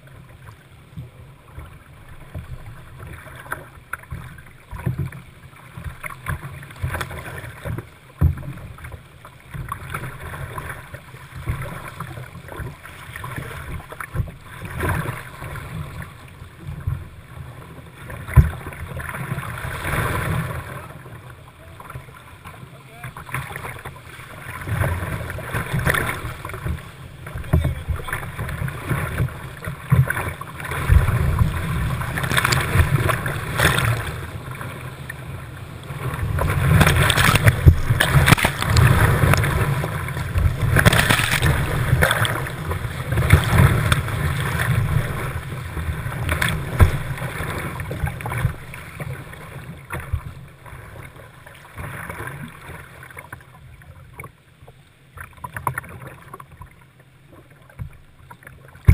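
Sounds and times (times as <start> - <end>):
whitewater rapids rushing and splashing: 36.0 - 49.6.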